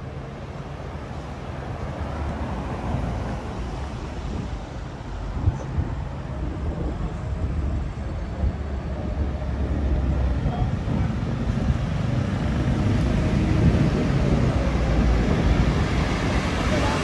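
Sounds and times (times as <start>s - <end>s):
passing vehicles rumbling: 0.0s - 17.0s.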